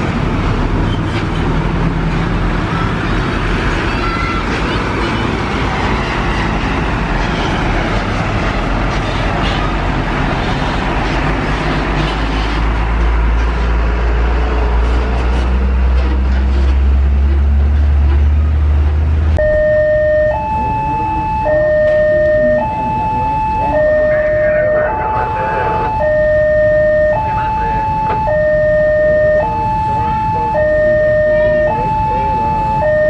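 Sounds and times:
bus engine drone: 0.0 - 33.0
road traffic passing: 0.0 - 33.0
level crossing alarm: 19.4 - 33.0.

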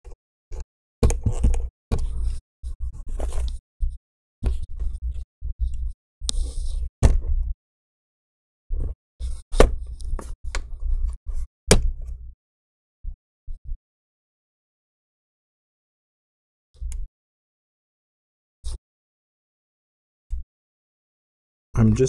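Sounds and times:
laptop thumping on desk: 11.7 - 12.0.

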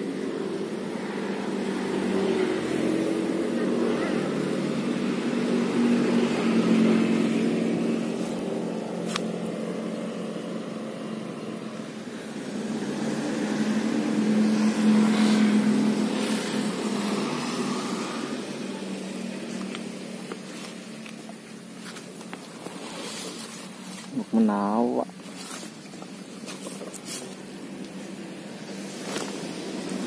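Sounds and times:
vehicles passing by: 0.0 - 30.0.

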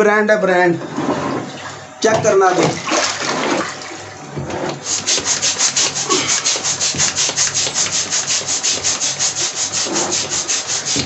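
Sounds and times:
air pump puffs: 4.7 - 11.0.

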